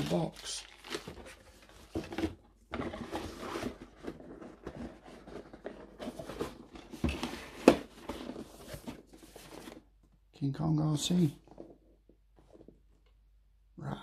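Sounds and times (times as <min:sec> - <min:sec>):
packaging rustling and scraping: 0:00.0 - 0:09.9.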